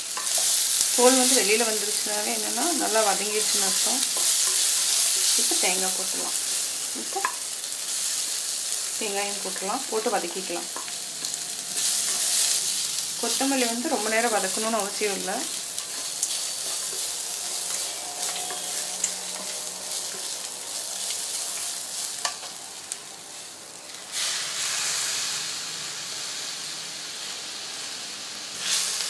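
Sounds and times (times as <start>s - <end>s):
food sizzling in oil: 0.0s - 29.0s
wooden spatula scraping pan: 2.9s - 5.7s, 10.8s - 12.7s, 15.5s - 22.5s.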